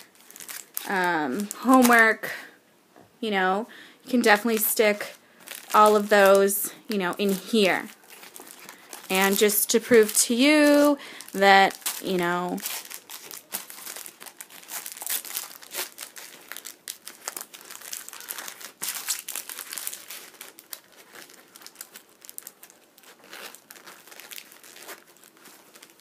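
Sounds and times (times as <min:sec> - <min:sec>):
canvas bag rustling and crinkling: 0:00.0 - 0:02.4, 0:04.1 - 0:26.0
small clicks and crackles: 0:07.2 - 0:26.0.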